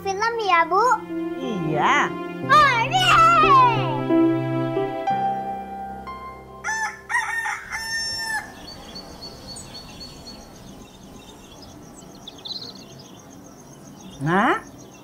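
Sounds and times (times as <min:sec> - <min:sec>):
background music: 0:00.0 - 0:08.4
rooster crowing: 0:06.6 - 0:09.2
faint high-pitched chirping: 0:08.3 - 0:15.0.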